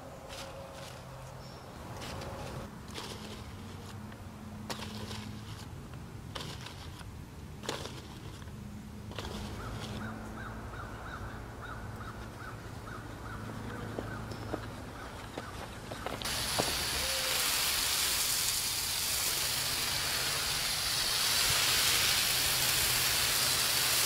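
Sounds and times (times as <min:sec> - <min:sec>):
bird chirping: 0:00.3 - 0:01.9.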